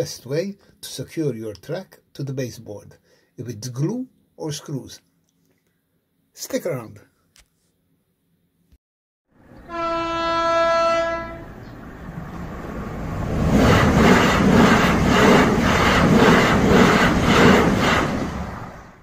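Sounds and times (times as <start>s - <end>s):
train rumbling past: 9.4s - 19.0s
train horn: 9.6s - 11.6s.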